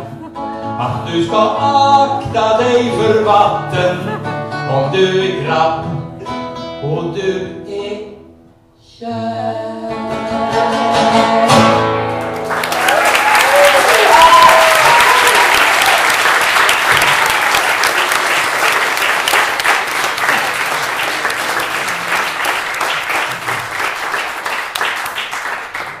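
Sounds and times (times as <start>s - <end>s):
audience applauding: 12.2s - 26.0s.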